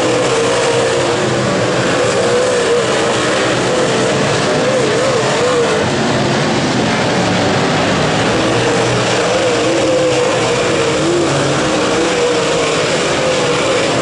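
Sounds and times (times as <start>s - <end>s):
race car engines revving: 0.0s - 14.0s.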